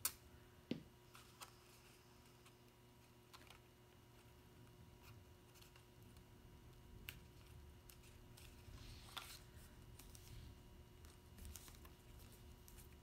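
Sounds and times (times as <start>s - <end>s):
paper rustling: 7.4s - 13.0s.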